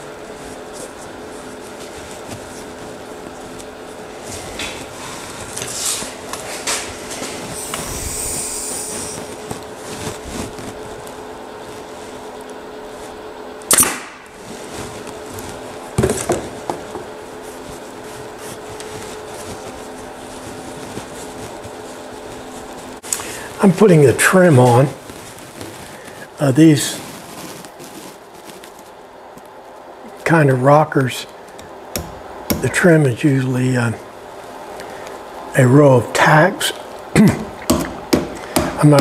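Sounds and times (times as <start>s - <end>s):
faint steady hum: 0.0s - 39.0s
short hiss: 7.6s - 9.3s.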